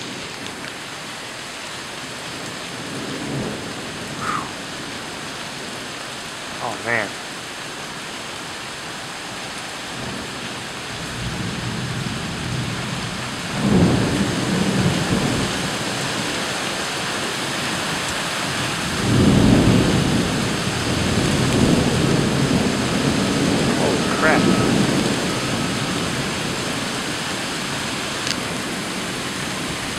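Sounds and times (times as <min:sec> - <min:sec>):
rain falling steadily: 0:00.0 - 0:29.9
thunder rolling: 0:18.7 - 0:29.2.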